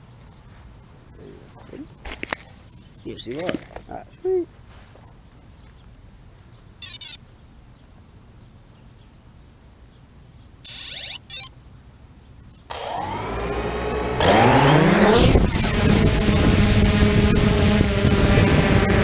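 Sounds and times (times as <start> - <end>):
short beeps: 10.6 - 11.5
drone motors whining: 10.7 - 11.5, 12.7 - 19.0.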